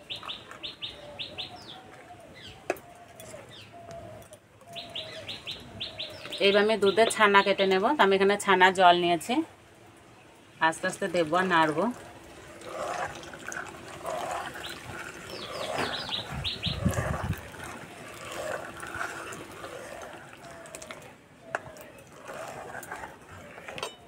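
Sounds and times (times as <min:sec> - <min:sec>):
liquid trickling into milk: 0:10.7 - 0:23.7.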